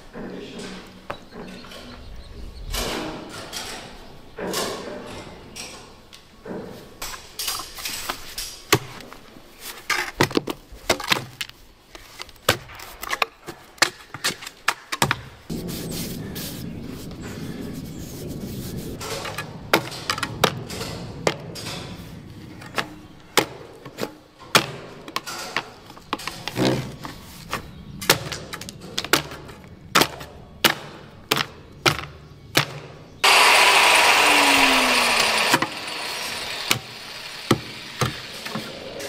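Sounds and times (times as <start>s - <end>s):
loud noise: 33.2s - 39.0s.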